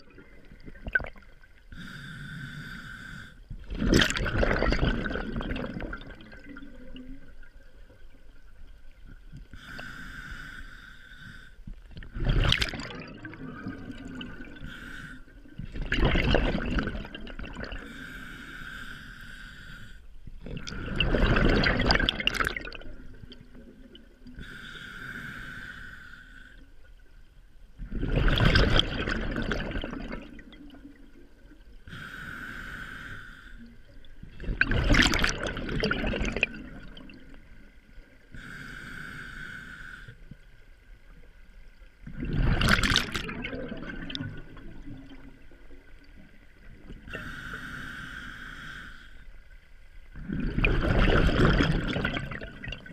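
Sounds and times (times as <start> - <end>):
regulator inhale hiss: 1.7 - 3.5, 9.5 - 11.7, 14.6 - 15.4, 17.8 - 20.2, 24.4 - 26.9, 31.9 - 33.8, 38.3 - 40.4, 47.1 - 49.5
exhaust bubbles rushing: 20.8 - 22.8, 50.2 - 52.8.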